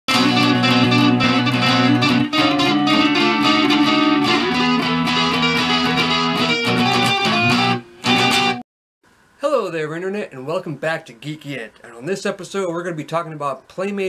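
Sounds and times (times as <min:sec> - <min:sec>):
electric guitar riff: 0:00.1 - 0:08.6.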